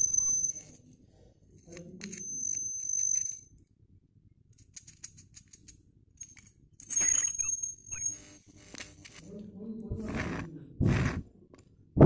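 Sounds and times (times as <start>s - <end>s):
high steady whistle with crackle: 0.0s - 0.8s.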